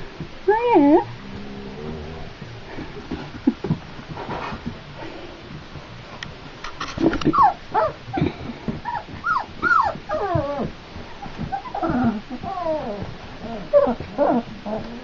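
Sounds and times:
puppies whimpering and squeaking: 7.2s - 8.0s, 8.8s - 15.0s.

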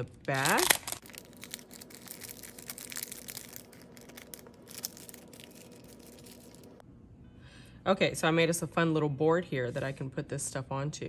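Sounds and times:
packaging rustling and crinkling: 0.3s - 6.8s.

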